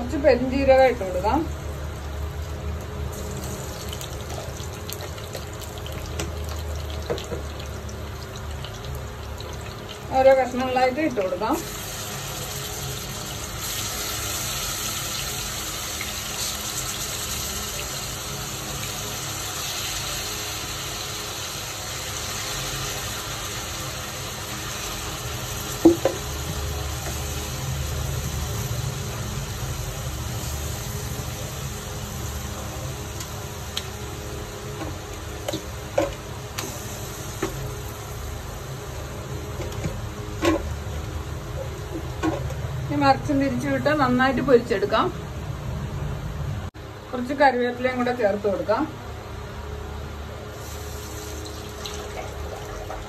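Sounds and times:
chicken sizzling in oil: 0:00.5 - 0:42.2, 0:50.5 - 0:53.0
sharp knocks in pan: 0:25.8 - 0:26.2.

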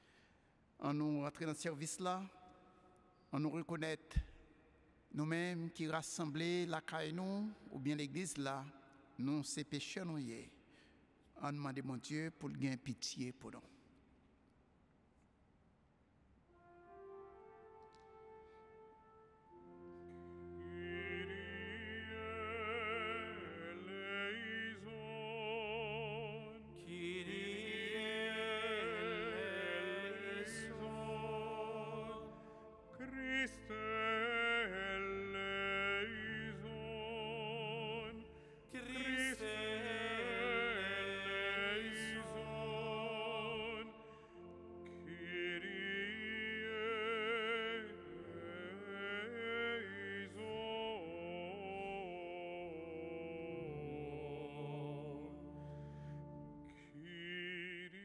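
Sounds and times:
low accompaniment chords: 0:16.5 - 0:49.4, 0:51.3 - 0:57.3
person singing a slow hymn: 0:16.7 - 0:58.0.

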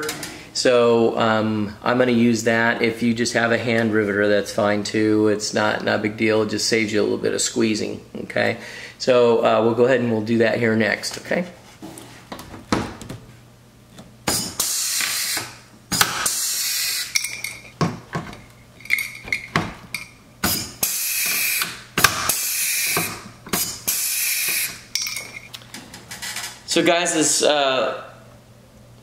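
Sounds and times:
rivet gun air hissing: 0:14.3 - 0:17.2, 0:20.4 - 0:24.8.

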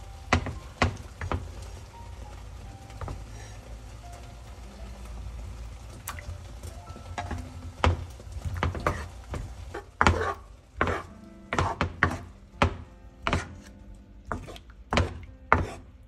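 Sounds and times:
wooden spatula knocking on pan: 0:00.3 - 0:01.6, 0:07.1 - 0:13.7, 0:14.3 - 0:15.9.

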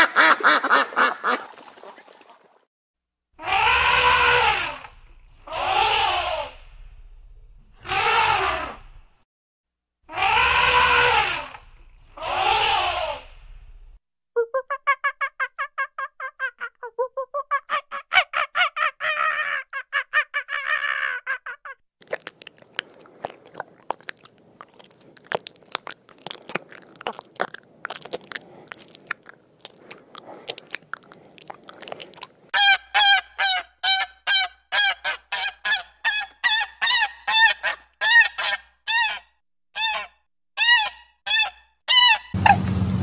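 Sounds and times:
swan honking: 0:40.7 - 0:42.9.

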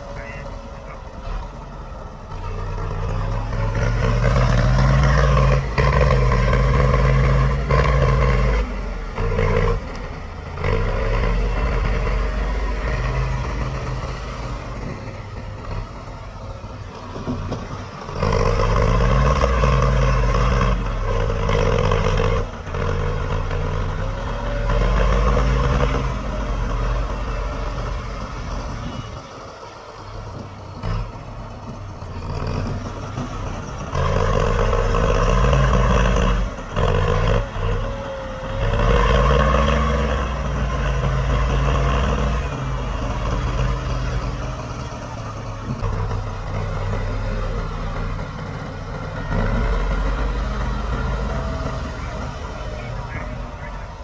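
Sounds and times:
heavy machinery diesel engine revving: 0:00.0 - 0:54.0.

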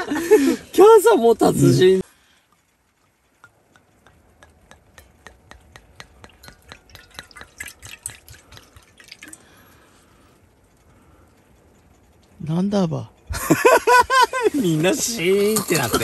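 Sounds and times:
drink dripping into glass: 0:03.0 - 0:09.8.

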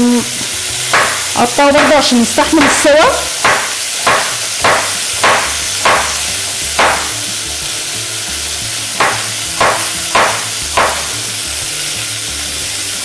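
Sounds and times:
beef sizzling in hot oil: 0:00.0 - 0:13.0
knife chopping on wooden board: 0:00.9 - 0:02.0, 0:03.4 - 0:07.2, 0:09.0 - 0:11.2.

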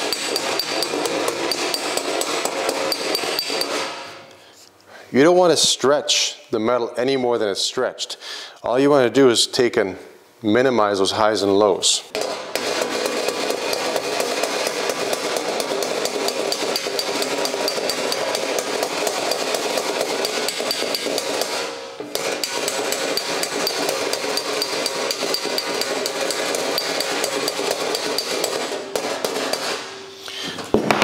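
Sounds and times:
hammer tapping sheet metal: 0:00.0 - 0:04.3, 0:12.1 - 0:31.0.

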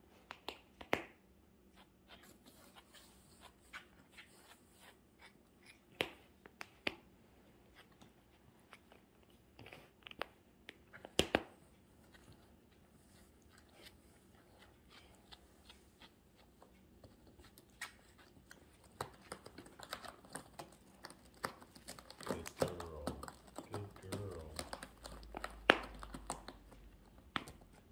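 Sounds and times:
faint clicks and crinkles: 0:01.8 - 0:27.9
cat biting fabric toy: 0:17.6 - 0:27.6.

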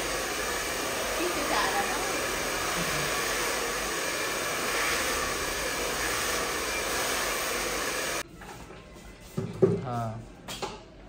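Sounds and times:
hair dryer running: 0:00.0 - 0:08.2.

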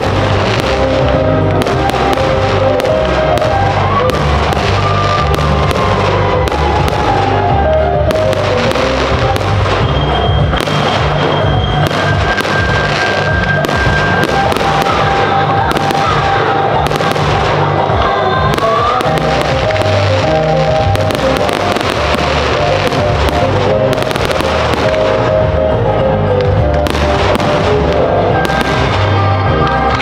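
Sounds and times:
fireworks bursting: 0:00.0 - 0:30.0
music soundtrack: 0:00.0 - 0:30.0.

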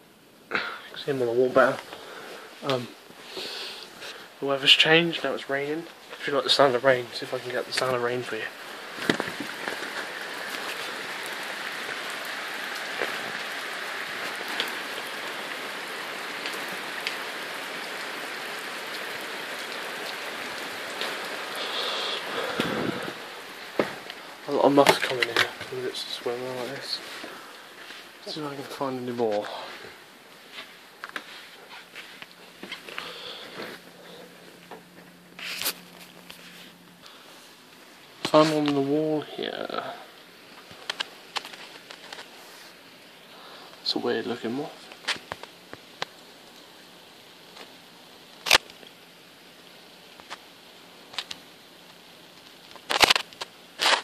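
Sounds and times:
faint steady hum: 0:00.0 - 0:54.0
steady rain falling: 0:00.0 - 0:54.0
raindrop ticks: 0:01.6 - 0:03.2, 0:03.8 - 0:29.6, 0:37.7 - 0:42.3, 0:43.0 - 0:54.0
person sniffing: 0:03.2 - 0:04.3, 0:21.5 - 0:23.2, 0:32.9 - 0:34.2
device handling rustles and clicks: 0:40.6 - 0:42.3.

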